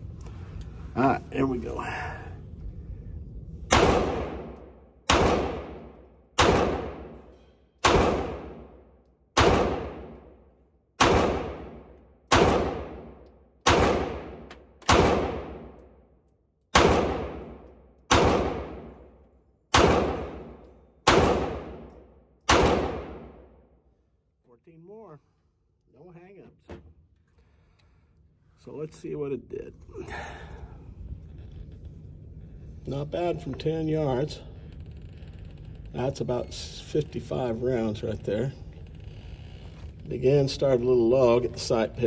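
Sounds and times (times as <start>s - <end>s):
pistol shots echoing indoors: 3.6s - 24.0s.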